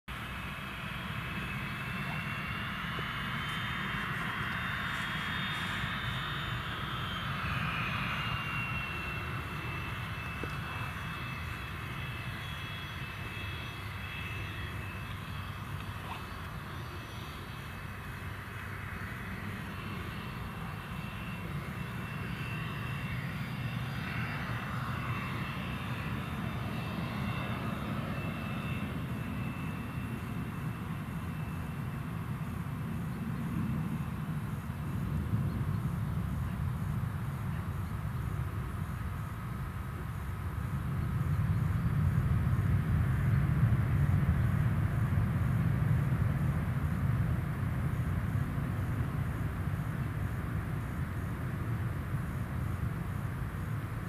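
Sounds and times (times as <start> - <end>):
jet engines whining: 0.1 - 54.0.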